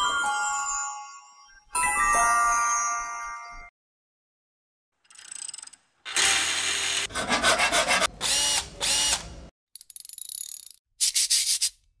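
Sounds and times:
cordless drill running: 0:06.1 - 0:07.1, 0:08.2 - 0:09.3.

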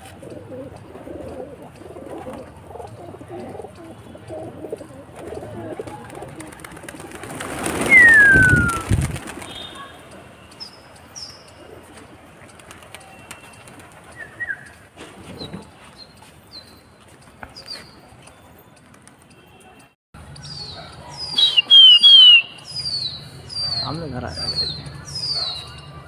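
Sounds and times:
pigeons cooing: 0:00.0 - 0:10.0
whistle falling in pitch: 0:21.4 - 0:22.5.

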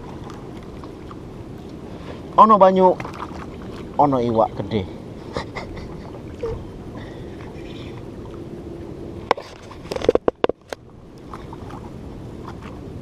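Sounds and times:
sea noise: 0:00.0 - 0:13.0
wind: 0:00.0 - 0:13.0
sharp clicks and knocks: 0:09.3 - 0:10.8.

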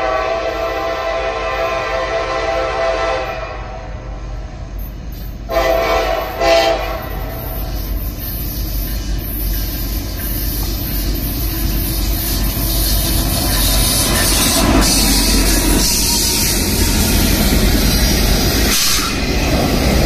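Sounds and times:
locomotive engines rumbling: 0:00.0 - 0:20.0
loud rushing noise: 0:12.8 - 0:20.0.

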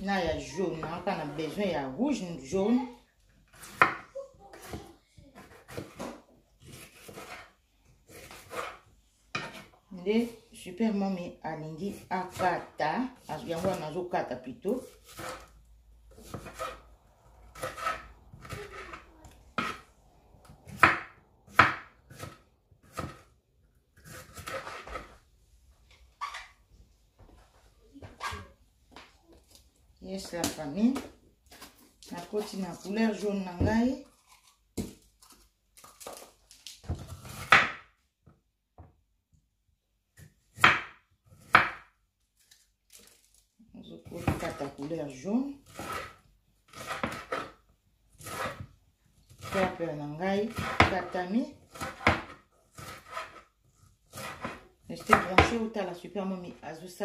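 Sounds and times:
knife chopping on wooden board: 0:04.6 - 0:07.5, 0:08.1 - 0:09.7, 0:16.1 - 0:16.8, 0:17.6 - 0:19.0, 0:19.6 - 0:19.8, 0:20.6 - 0:23.3, 0:37.0 - 0:37.9, 0:40.2 - 0:41.9, 0:46.7 - 0:47.6, 0:48.2 - 0:48.7, 0:50.5 - 0:53.4, 0:54.1 - 0:55.6.

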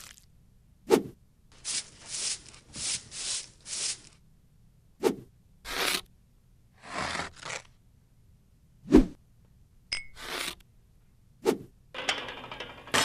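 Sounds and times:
makeup brush strokes: 0:01.6 - 0:04.2.

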